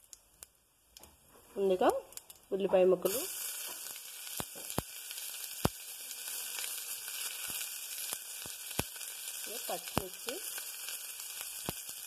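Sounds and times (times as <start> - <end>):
sharp pops and crackles: 0.0 - 1.2, 1.9 - 12.0
onion sizzling in hot fat: 0.0 - 12.0.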